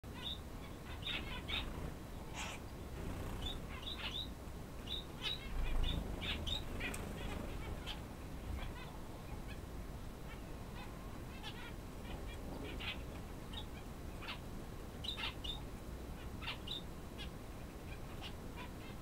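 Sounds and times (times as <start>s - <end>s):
faint low hum: 0.0s - 19.0s
quail chirping: 0.1s - 4.3s, 4.9s - 9.7s, 10.3s - 19.0s.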